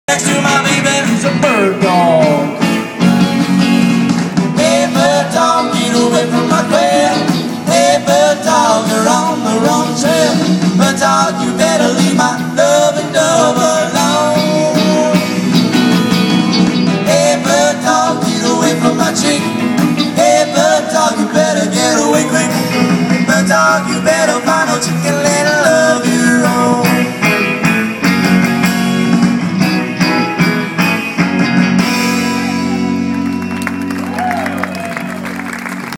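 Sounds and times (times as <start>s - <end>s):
drum kit: 0.1s - 35.9s
electric guitars: 0.1s - 35.9s.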